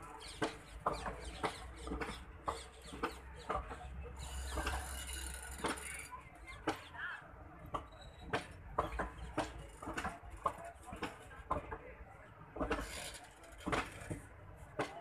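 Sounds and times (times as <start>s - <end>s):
train wheels clicking over rail joints: 0.0s - 6.9s, 7.6s - 15.0s.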